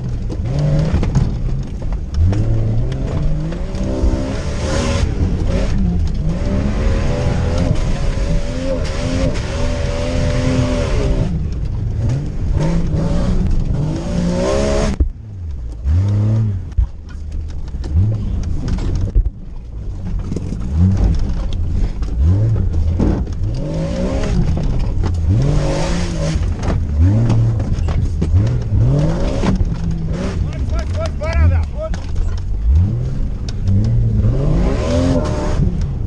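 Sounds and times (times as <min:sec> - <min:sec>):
car engine revving: 0:00.0 - 0:36.0.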